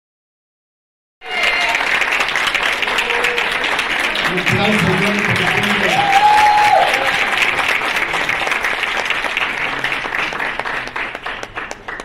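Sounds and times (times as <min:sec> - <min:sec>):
audience applauding: 0:01.2 - 0:12.0.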